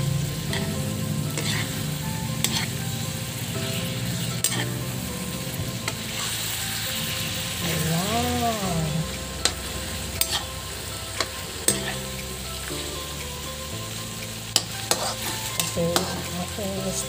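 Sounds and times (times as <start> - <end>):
food sizzling in a wok: 0.0 - 17.0
metal spatula striking pan: 1.4 - 1.8, 2.4 - 2.7, 4.4 - 4.6, 9.4 - 10.5, 11.2 - 12.2, 14.5 - 16.2.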